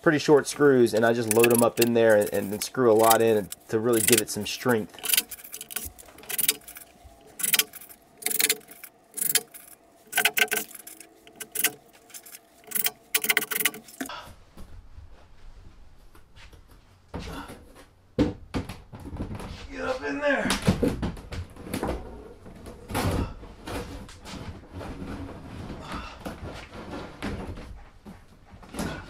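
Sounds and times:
metallic clinks of screws: 0:01.1 - 0:14.1.

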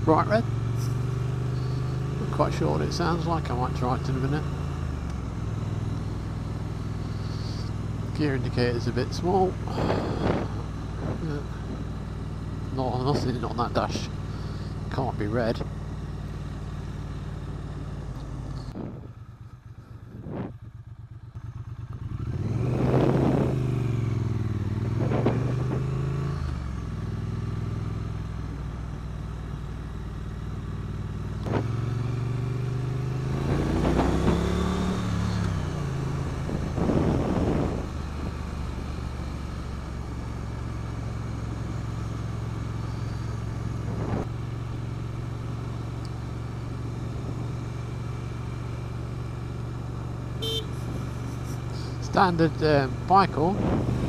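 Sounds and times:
motorcycle engine running: 0:00.0 - 0:54.0
wind noise: 0:09.7 - 0:11.9, 0:18.7 - 0:19.2, 0:20.1 - 0:20.6, 0:24.9 - 0:25.9, 0:36.3 - 0:38.4, 0:43.9 - 0:44.3, 0:53.4 - 0:54.0.

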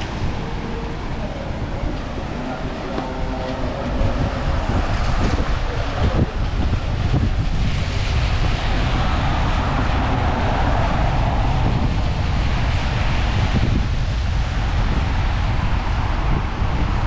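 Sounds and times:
wind buffeting microphone: 0:00.0 - 0:17.0
wind rushing hiss: 0:00.0 - 0:17.0.

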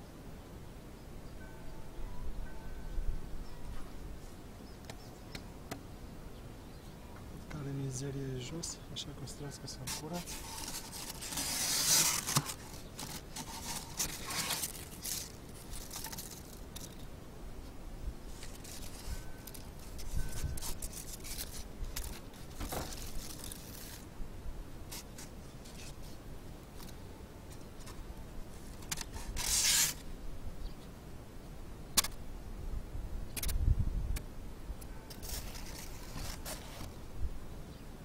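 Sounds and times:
scraping and rustling in beehive: 0:07.5 - 0:17.1, 0:18.2 - 0:24.1, 0:24.9 - 0:30.0, 0:35.1 - 0:37.0.

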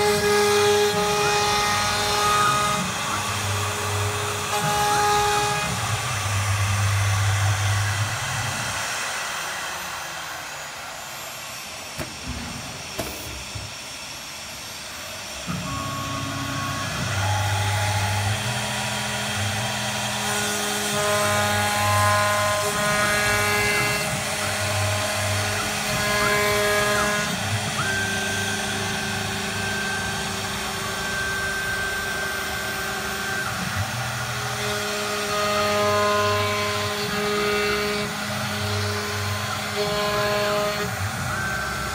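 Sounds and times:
axis drive motor tones: 0:00.0 - 0:41.9
router spindles whining: 0:00.0 - 0:41.9.

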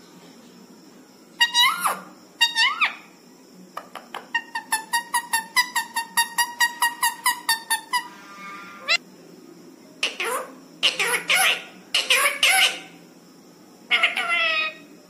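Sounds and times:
parakeet whistling: 0:04.4 - 0:09.0.

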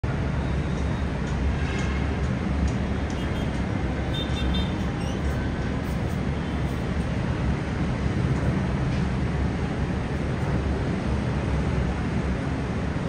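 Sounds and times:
rumble of road traffic: 0:00.0 - 0:13.0.

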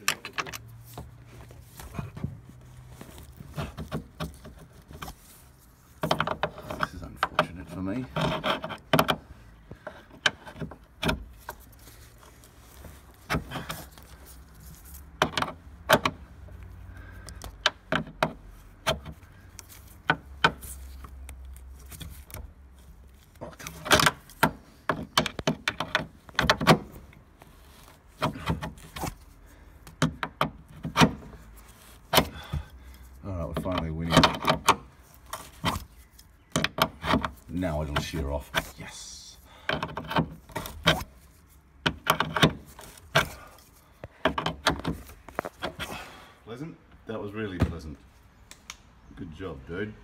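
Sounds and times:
hand tools clicking and clinking: 0:00.0 - 0:00.9.

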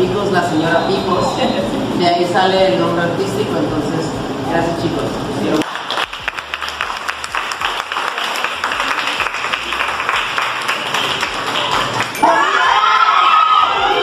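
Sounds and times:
people clapping: 0:05.6 - 0:14.0
people shouting and cheering: 0:10.8 - 0:14.0.

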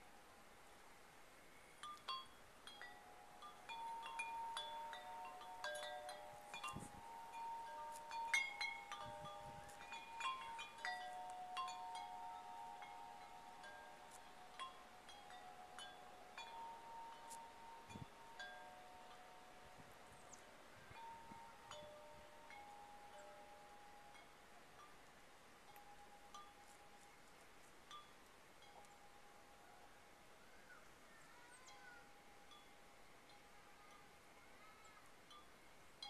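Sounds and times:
wind chime ringing: 0:01.8 - 0:20.3.

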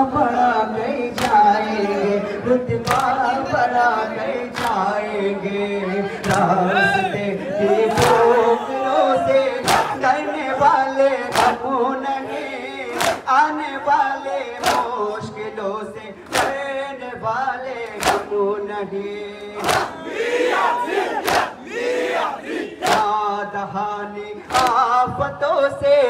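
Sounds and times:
men chanting in chorus: 0:00.0 - 0:26.0
chest-beating slaps in unison: 0:01.1 - 0:01.5, 0:02.7 - 0:03.2, 0:04.5 - 0:04.9, 0:06.2 - 0:06.6, 0:07.9 - 0:08.4, 0:09.6 - 0:10.0, 0:11.3 - 0:11.7, 0:12.9 - 0:13.4, 0:14.6 - 0:15.0, 0:16.2 - 0:16.7, 0:17.8 - 0:18.4, 0:19.6 - 0:20.0, 0:21.1 - 0:21.7, 0:22.4 - 0:23.2, 0:24.4 - 0:25.0.

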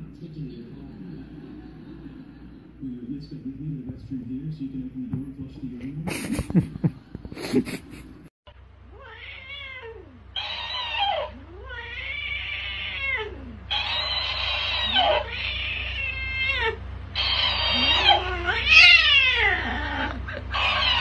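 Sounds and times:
cat yowling: 0:08.9 - 0:21.0
toy playing back yowls: 0:08.9 - 0:21.0.

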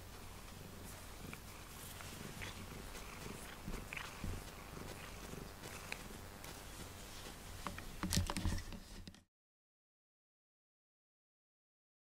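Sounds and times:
cat purring: 0:00.0 - 0:08.8.

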